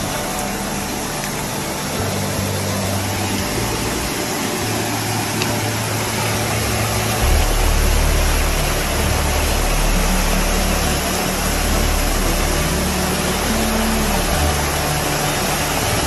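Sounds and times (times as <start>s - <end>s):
loud rushing hiss: 0.0s - 16.0s
motorbike engine running: 0.0s - 16.0s.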